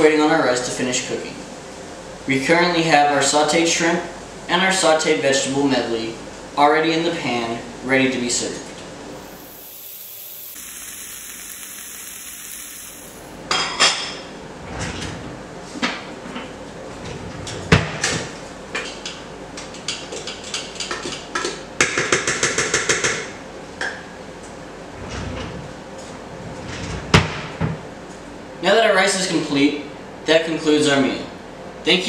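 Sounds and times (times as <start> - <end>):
steady hiss: 9.2 - 13.4.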